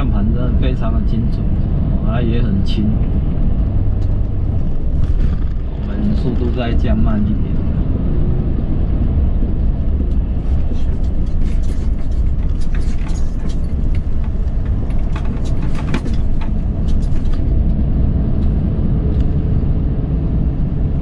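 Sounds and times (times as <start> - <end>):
truck engine and road rumble: 0.0 - 21.0
clicks and rattles in cab: 9.4 - 17.8.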